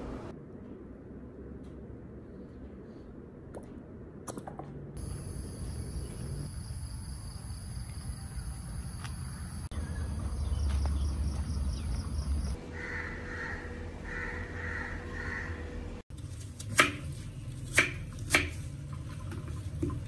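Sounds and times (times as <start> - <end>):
insects buzzing: 5.0 - 15.4
crows cawing: 12.6 - 15.8.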